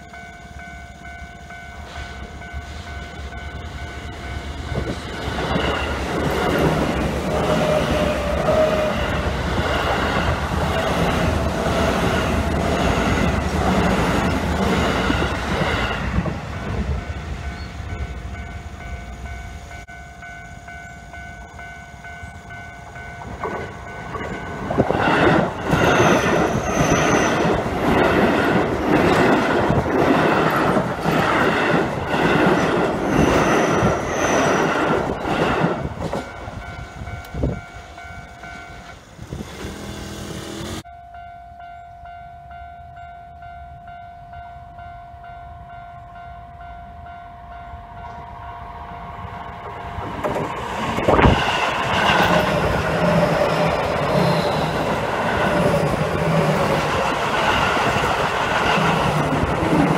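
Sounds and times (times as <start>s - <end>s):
crossing alarm clanging: 0.0s - 59.9s
train wheels clattering: 22.8s - 37.7s.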